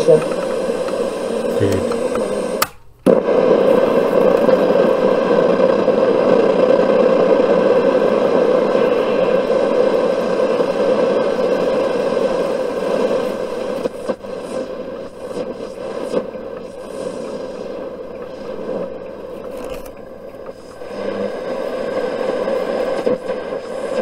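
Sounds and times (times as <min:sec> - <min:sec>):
radio crackling: 0:00.0 - 0:24.0
radio static: 0:00.0 - 0:24.0
radio switch clicks: 0:00.1 - 0:03.2.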